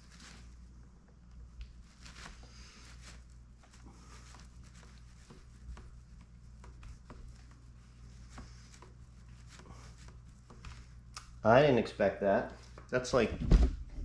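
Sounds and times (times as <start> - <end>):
hands scuffing and rubbing: 0.0 - 0.6, 1.5 - 11.4
steady low hum: 0.0 - 14.0.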